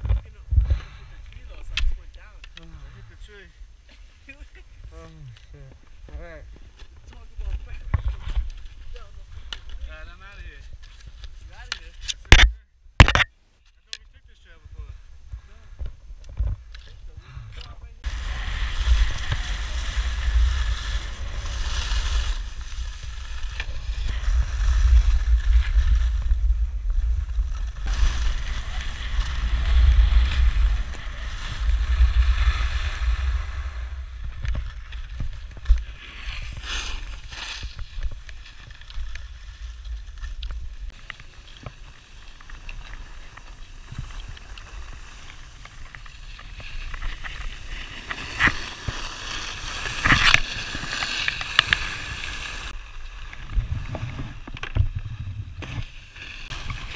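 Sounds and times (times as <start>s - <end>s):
wind noise on microphone: 14.8s - 38.3s, 53.4s - 56.9s
ski edges scraping over snow: 18.0s - 56.9s.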